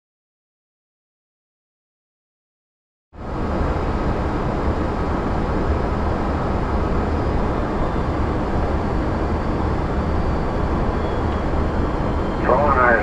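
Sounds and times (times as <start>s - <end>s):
cockpit air rush and engine noise: 3.2s - 13.0s
low drone: 3.2s - 13.0s.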